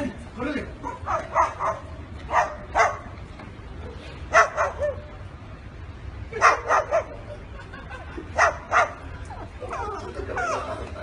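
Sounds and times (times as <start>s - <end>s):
cockatoo barking like a dog: 0.8s - 3.1s, 4.3s - 5.1s, 6.4s - 7.3s, 8.4s - 9.0s.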